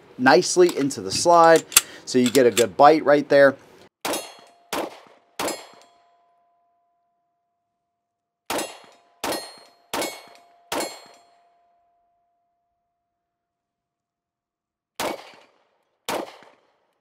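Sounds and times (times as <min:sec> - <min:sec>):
pistol shots: 0:04.0 - 0:05.8, 0:08.5 - 0:11.2, 0:15.0 - 0:16.8.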